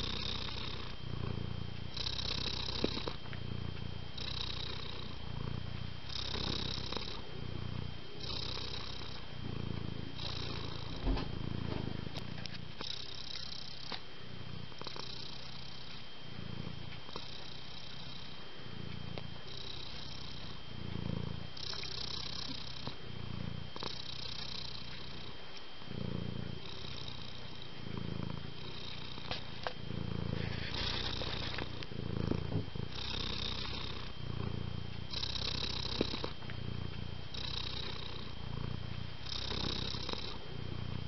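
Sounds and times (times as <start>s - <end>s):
cat purring: 0.0s - 41.0s
soft thump: 11.0s - 11.9s.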